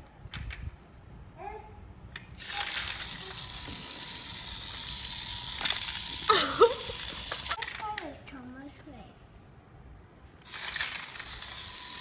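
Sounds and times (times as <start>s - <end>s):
toy train motor whirring: 2.4s - 7.7s, 10.4s - 12.0s.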